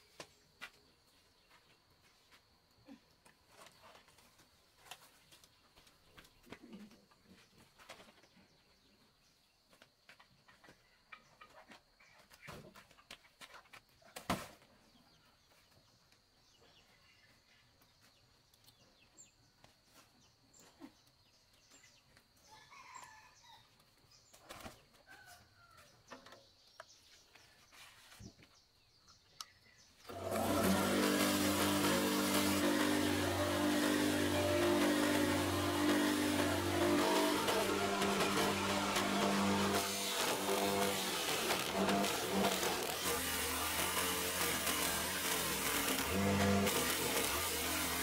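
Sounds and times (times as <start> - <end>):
electric motor humming: 30.1 - 48.0.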